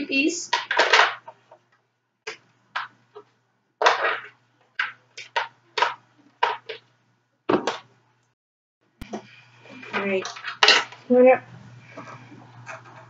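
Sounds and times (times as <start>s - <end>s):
plastic parts clicking and knocking: 0.5s - 6.9s.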